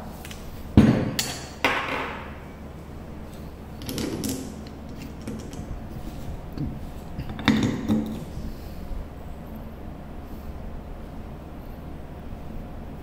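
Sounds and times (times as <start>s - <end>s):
faint handling rattles: 3.8s - 8.3s.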